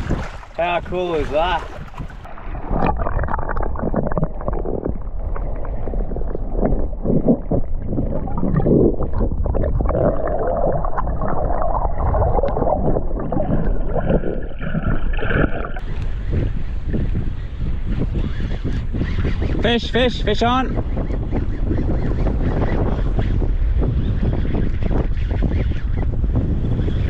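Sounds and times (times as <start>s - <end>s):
water gurgling underwater: 1.4s - 15.9s.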